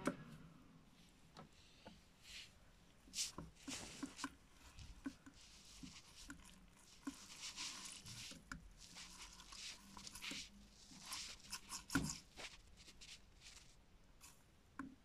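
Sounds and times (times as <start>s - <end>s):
fabric rustling: 2.2s - 13.8s.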